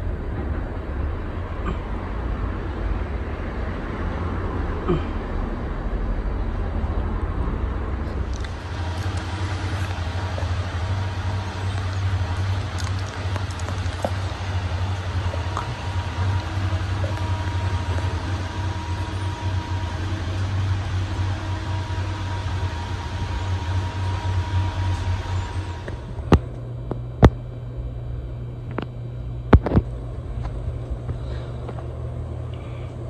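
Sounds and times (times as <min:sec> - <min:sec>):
ceiling fan humming: 0:00.0 - 0:33.0
faint thin whine: 0:08.1 - 0:33.0.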